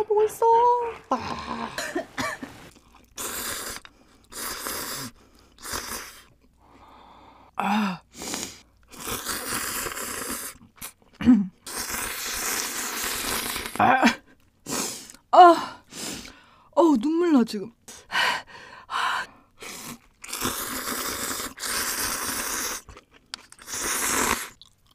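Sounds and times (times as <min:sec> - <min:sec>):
slurping noodles: 0:02.5 - 0:06.9, 0:08.1 - 0:13.9, 0:14.6 - 0:15.2, 0:19.6 - 0:24.9
sharp hissing breaths: 0:15.9 - 0:16.6.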